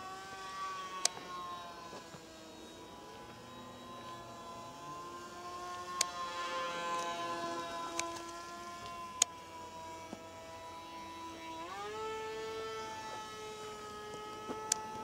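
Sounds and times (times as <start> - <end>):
model airplane motor whining: 0.0 - 15.0.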